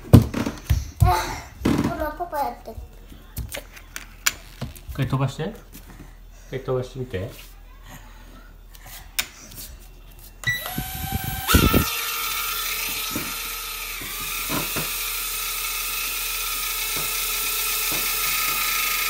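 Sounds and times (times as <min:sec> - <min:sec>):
drone propellers whining: 0:10.5 - 0:15.4.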